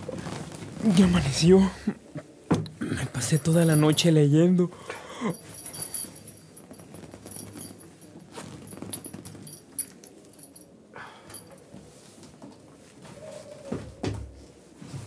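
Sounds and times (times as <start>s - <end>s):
rustling: 0.0s - 2.5s, 5.3s - 15.0s
clinks: 3.2s - 4.4s, 5.2s - 11.7s.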